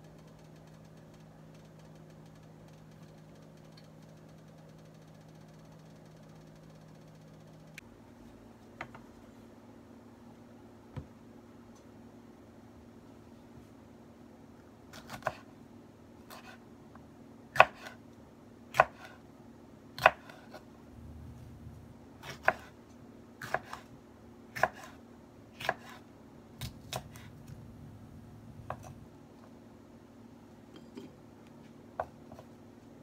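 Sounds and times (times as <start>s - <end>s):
knife cutting on wooden board: 22.2s - 22.7s, 24.6s - 25.0s, 25.6s - 26.0s.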